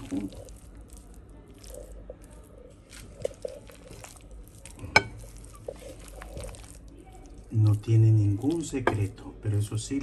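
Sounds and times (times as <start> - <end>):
spoon stirring wet salad: 0.0 - 10.0.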